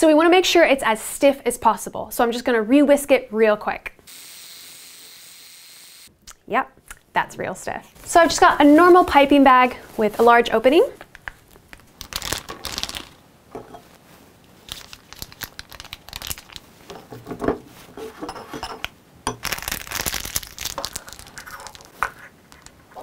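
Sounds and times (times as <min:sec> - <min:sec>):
plastic piping bag crinkling: 0:08.0 - 0:13.2, 0:14.5 - 0:16.9, 0:19.3 - 0:22.8.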